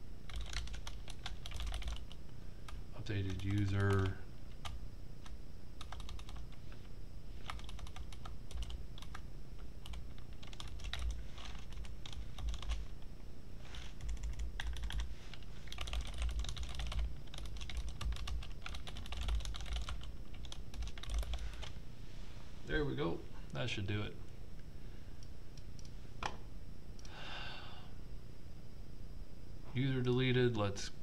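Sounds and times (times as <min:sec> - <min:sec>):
typing on computer keyboard: 0:00.3 - 0:02.2, 0:03.2 - 0:06.5, 0:07.4 - 0:09.2, 0:09.8 - 0:12.9, 0:14.0 - 0:15.1, 0:15.7 - 0:21.7.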